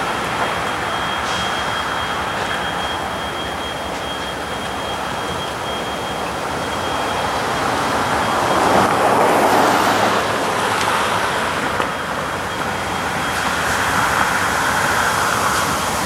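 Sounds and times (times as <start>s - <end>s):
diesel locomotive running: 0.0s - 16.0s
road traffic: 0.0s - 16.0s.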